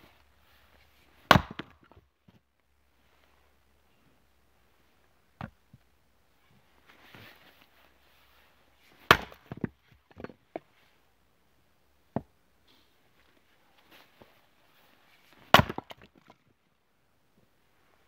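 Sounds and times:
axe striking firewood: 0:01.2 - 0:02.0, 0:09.0 - 0:10.3, 0:15.4 - 0:16.2
wood pieces knocking and falling: 0:09.0 - 0:10.7, 0:15.4 - 0:16.4.

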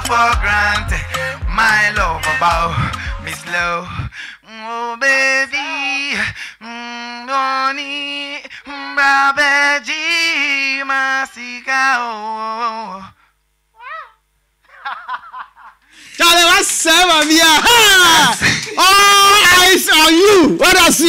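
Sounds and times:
backing music with bass: 0:00.0 - 0:03.9
man singing into a microphone: 0:00.0 - 0:13.2.

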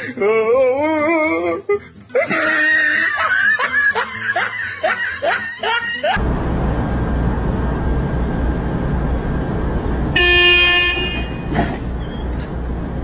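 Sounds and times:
music: 0:00.0 - 0:06.1.

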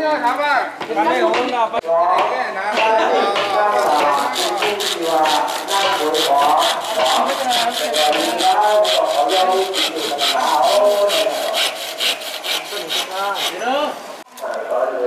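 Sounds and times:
hand sawing wood with squealing: 0:03.2 - 0:13.9.

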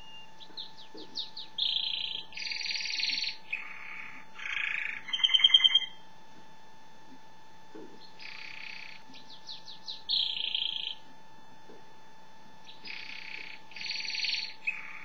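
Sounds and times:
canary singing: 0:00.0 - 0:06.0, 0:08.0 - 0:11.1, 0:12.6 - 0:15.0.

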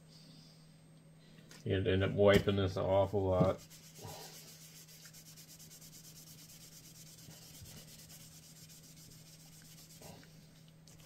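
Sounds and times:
steady low hum: 0:00.0 - 0:11.0
faint rubbing of skin: 0:03.6 - 0:11.0.

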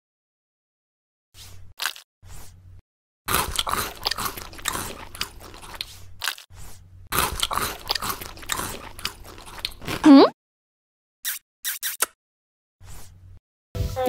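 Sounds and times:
crunchy biting and chewing: 0:01.8 - 0:02.6, 0:03.3 - 0:10.1.

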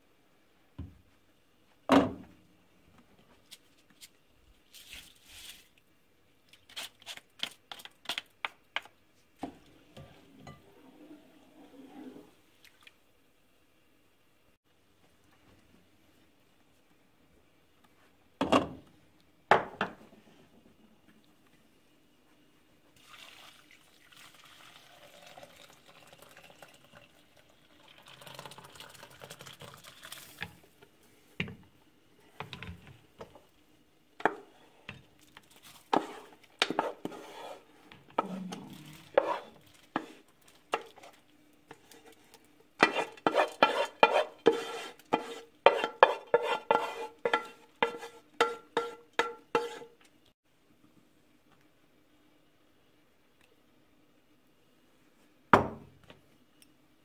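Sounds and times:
water pouring through a sieve: 0:23.0 - 0:30.4
rice scraped from metal pot: 0:35.9 - 0:41.1, 0:42.8 - 0:49.9.

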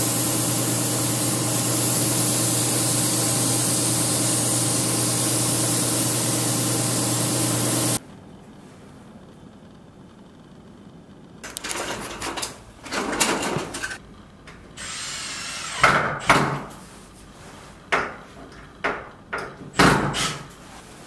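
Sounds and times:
power tool whirr: 0:00.0 - 0:08.0, 0:14.8 - 0:15.9.

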